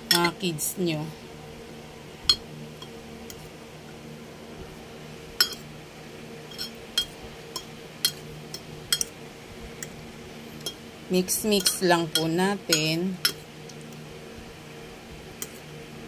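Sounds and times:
steady low hum: 0.0s - 16.0s
fork clinking against ceramic bowl: 5.4s - 5.6s, 6.5s - 9.1s, 11.6s - 13.4s.

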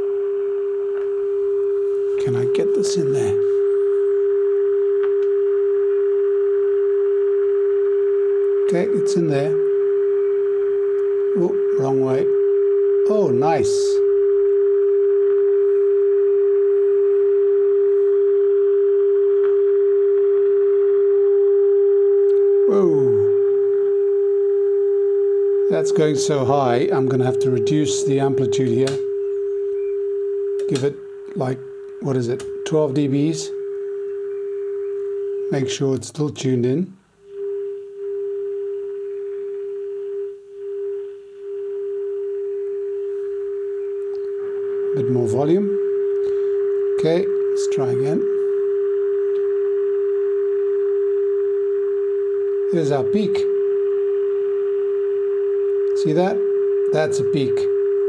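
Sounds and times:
steady test tone from loudspeaker: 0.0s - 1.0s, 1.7s - 5.3s, 8.2s - 16.3s, 22.3s - 24.0s, 25.5s - 38.1s, 42.7s - 51.0s, 52.3s - 55.1s, 55.7s - 57.8s.

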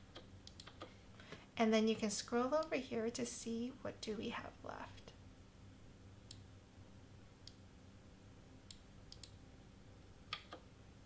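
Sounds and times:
faint computer mouse clicks: 0.1s - 1.4s.

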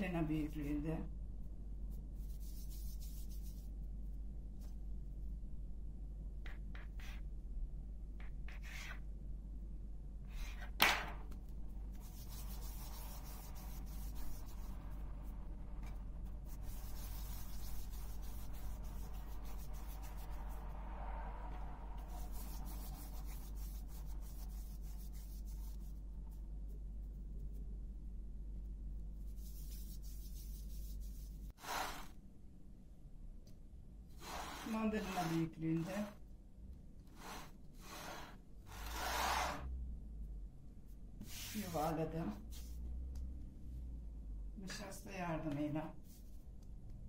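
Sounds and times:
steady low hum: 0.0s - 47.0s
hands rubbing dough: 1.8s - 4.8s, 10.3s - 20.7s, 22.0s - 27.8s, 29.1s - 32.2s, 34.2s - 36.2s, 41.2s - 42.8s, 45.9s - 46.6s.

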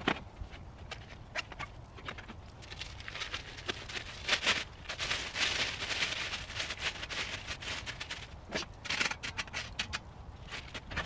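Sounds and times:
plastic bag rustling: 0.9s - 11.0s.

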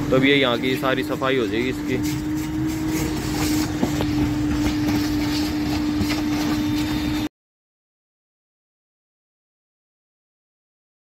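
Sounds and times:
vacuum cleaner humming: 0.0s - 7.3s
nozzle sucking on carpet: 1.4s - 7.3s.

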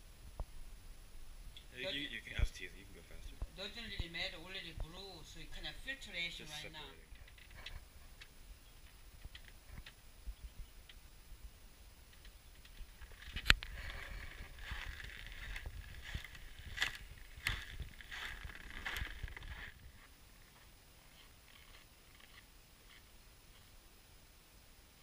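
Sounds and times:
footsteps crunching in snow: 13.0s - 21.8s.

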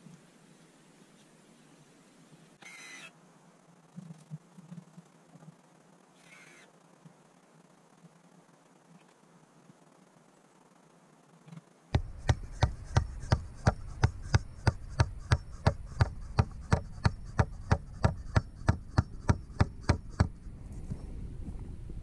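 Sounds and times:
steady hammering: 11.9s - 20.5s.

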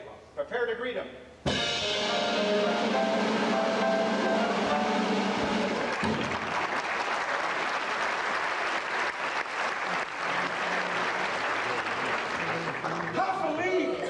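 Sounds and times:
music ending on low note: 1.5s - 6.0s
audience applause: 4.4s - 14.0s.

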